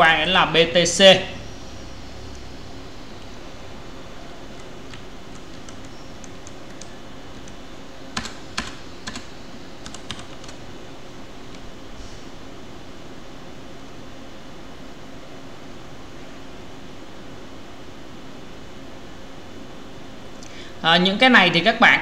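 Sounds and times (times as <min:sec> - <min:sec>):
steady background hiss: 0:00.0 - 0:22.0
keyboard keys being pressed: 0:04.5 - 0:10.6.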